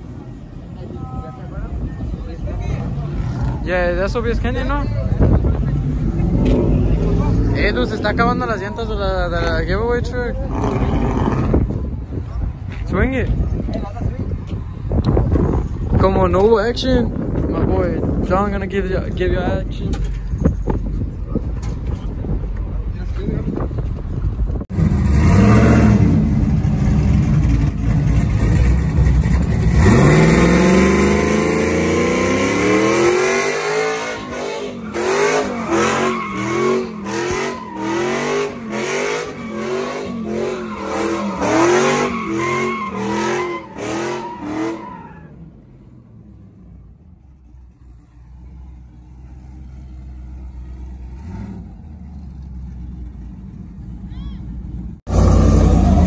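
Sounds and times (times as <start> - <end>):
truck engine revving: 10.2 - 11.8, 24.7 - 45.2, 54.7 - 56.0
tires spinning: 17.0 - 56.0.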